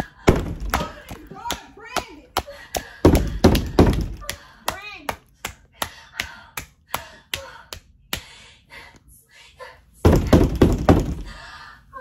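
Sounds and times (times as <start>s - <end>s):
knocking on a door: 10.0s - 11.3s.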